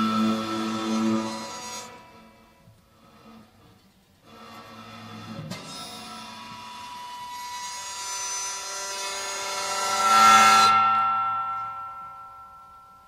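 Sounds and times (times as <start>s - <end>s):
ringing pitched string tones: 9.5s - 13.0s.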